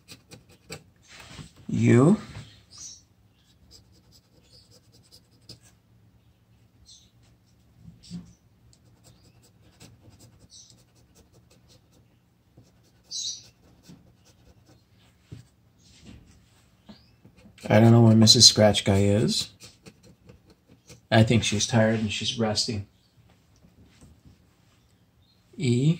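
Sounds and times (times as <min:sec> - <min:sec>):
scratching a lottery ticket: 0:00.0 - 0:01.3, 0:03.5 - 0:05.8, 0:08.9 - 0:14.8, 0:17.4 - 0:22.2.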